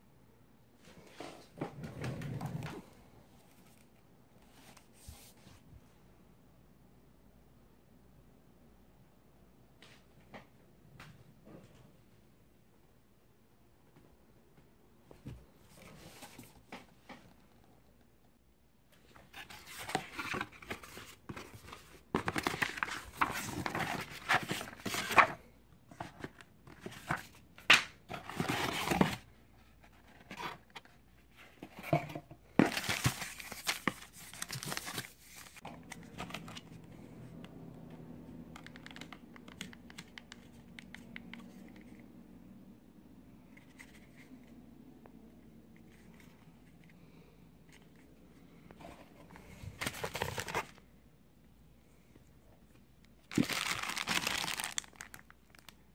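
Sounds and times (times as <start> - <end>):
plastic packaging crinkling: 53.2 - 55.8.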